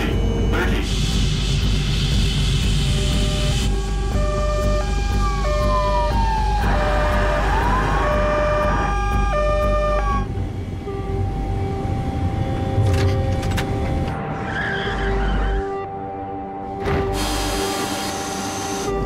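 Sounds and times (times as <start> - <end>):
steady held drone: 0.0 - 14.4
emergency vehicle sirens: 3.0 - 10.4.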